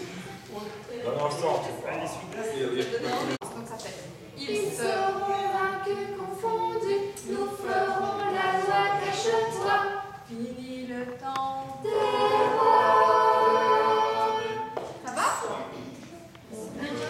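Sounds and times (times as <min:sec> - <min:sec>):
choir singing a cappella: 0:04.3 - 0:15.0, 0:16.4 - 0:17.0.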